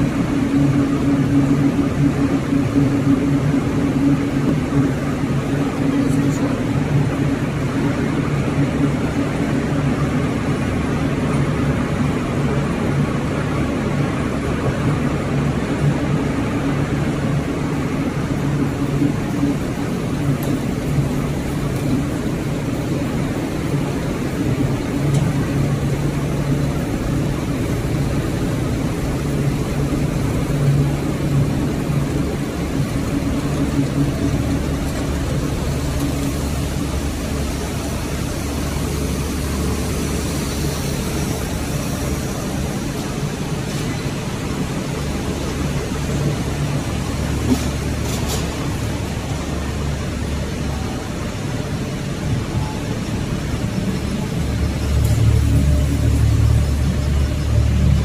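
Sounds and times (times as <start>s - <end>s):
machinery droning: 0.0s - 58.0s.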